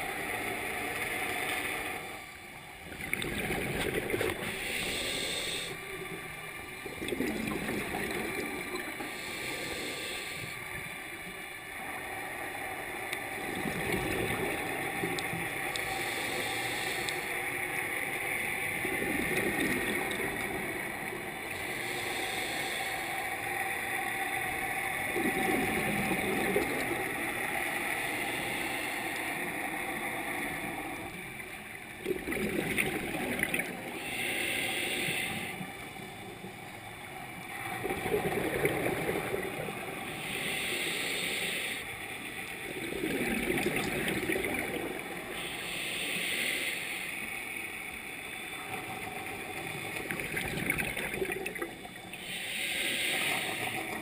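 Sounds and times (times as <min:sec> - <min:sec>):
regulator hiss on inhale: 0:00.1 - 0:02.4, 0:04.4 - 0:06.0, 0:08.1 - 0:11.4, 0:14.6 - 0:18.6, 0:19.6 - 0:25.2, 0:26.5 - 0:31.5, 0:33.6 - 0:37.9, 0:39.2 - 0:42.6, 0:44.9 - 0:50.2, 0:52.0 - 0:54.0
gurgling rush of exhaled bubbles: 0:02.8 - 0:04.9, 0:06.8 - 0:09.1, 0:18.8 - 0:20.4, 0:25.1 - 0:27.1, 0:32.0 - 0:34.0, 0:37.8 - 0:39.7, 0:42.6 - 0:45.2, 0:49.6 - 0:51.9.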